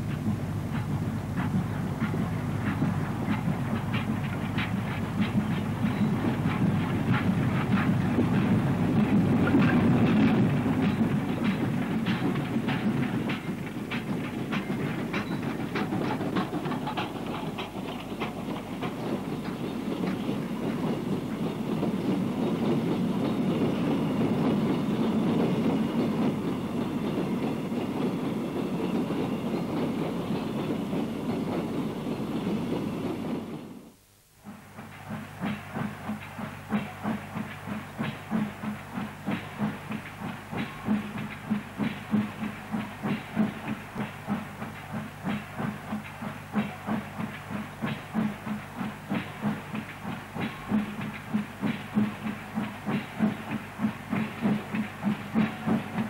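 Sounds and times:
train wagons rumbling past: 0.0s - 56.0s
wheel clicks on rail joints: 0.1s - 28.2s, 34.8s - 56.0s
steam engine exhaust chuffing: 34.5s - 56.0s.

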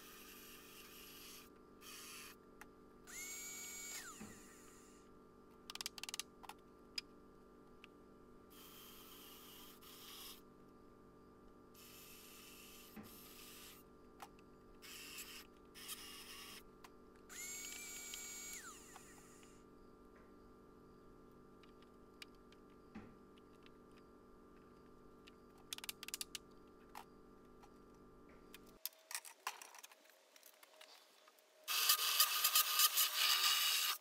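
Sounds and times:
faint steady hum: 0.0s - 32.2s
cordless drill whining: 3.1s - 5.0s, 17.3s - 19.6s.

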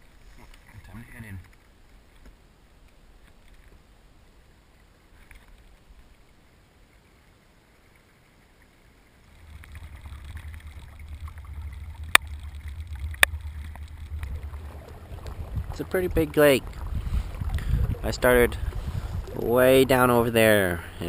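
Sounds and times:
water and wind rumble: 0.0s - 21.0s.

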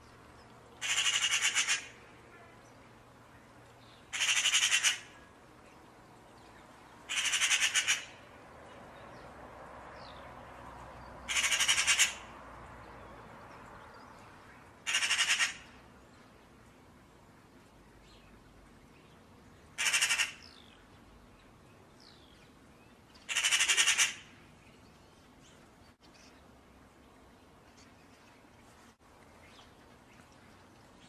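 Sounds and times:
bird harsh rattling call: 0.8s - 1.9s, 4.1s - 5.1s, 7.1s - 8.2s, 11.3s - 12.3s, 14.9s - 15.7s, 19.8s - 20.4s, 23.3s - 24.3s.

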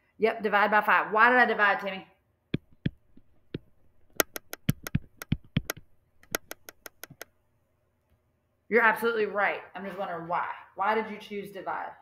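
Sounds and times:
stylus tapping on touchscreen: 2.5s - 7.3s.

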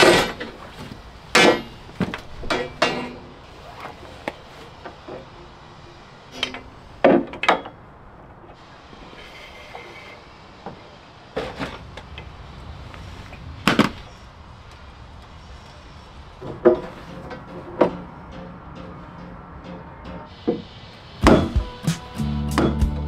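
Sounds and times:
knocks and clunks on metal: 1.3s - 3.3s, 16.4s - 21.7s.

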